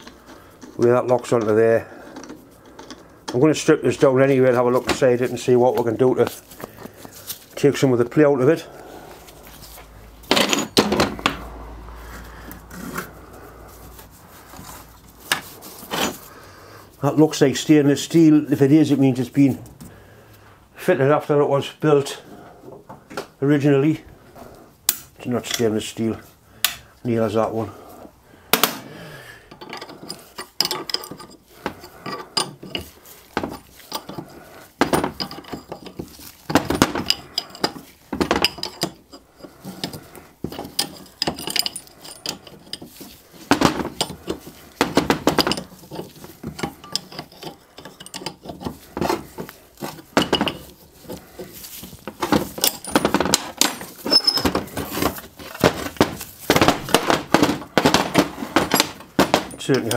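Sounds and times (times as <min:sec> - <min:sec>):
hand tools clanking on metal: 0:00.0 - 0:11.6, 0:12.3 - 0:16.3, 0:26.6 - 0:27.8, 0:28.5 - 0:59.9
heavy casting turned on steel bench: 0:00.0 - 0:16.3, 0:28.6 - 0:59.9.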